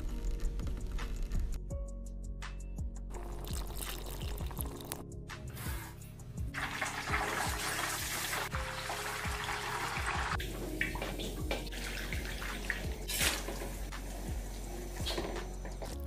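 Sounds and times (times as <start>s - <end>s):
water poured into oil splashing: 3.2s - 5.0s, 6.6s - 10.3s.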